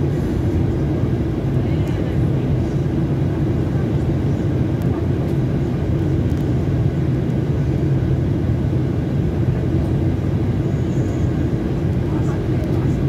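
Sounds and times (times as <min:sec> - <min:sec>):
aircraft cabin engine drone: 0:00.0 - 0:13.0.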